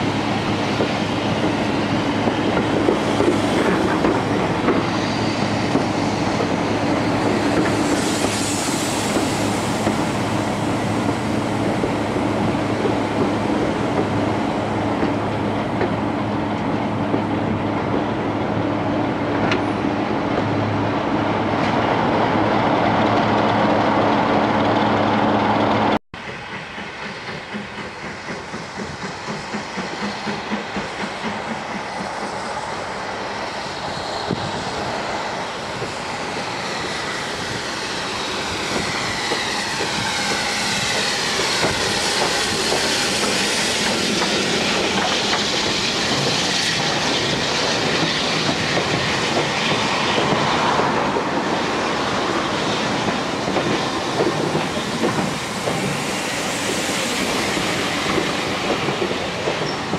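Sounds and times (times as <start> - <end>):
steam locomotive rhythmic beat: 26.2 - 32.5, 38.7 - 50.5.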